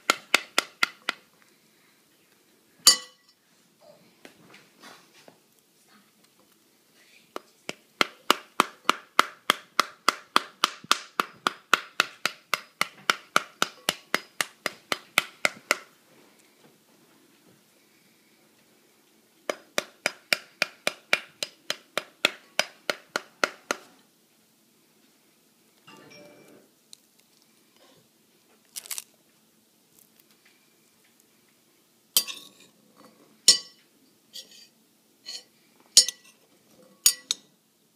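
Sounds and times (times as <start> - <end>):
metal spoon clinking on glass bowl: 2.9 - 3.4, 32.2 - 32.6, 33.5 - 33.8, 36.0 - 37.4
metal spoon knocking fruit rind: 8.0 - 15.9.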